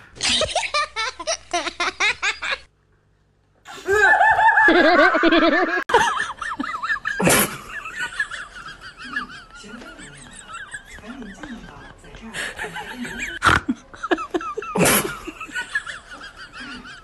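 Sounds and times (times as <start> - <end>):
warbling laugh-like sound: 3.7 - 8.3
person laughing: 3.7 - 17.0.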